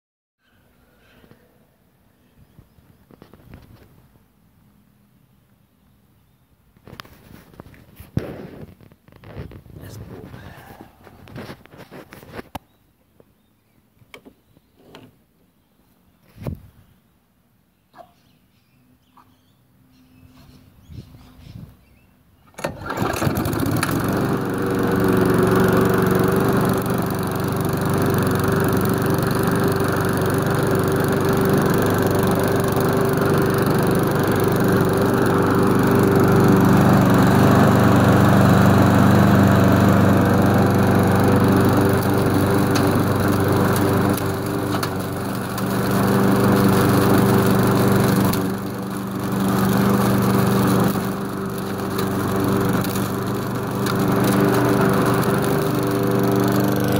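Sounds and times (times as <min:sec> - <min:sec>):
lawn mower engine running: 0:22.5 - 0:56.9.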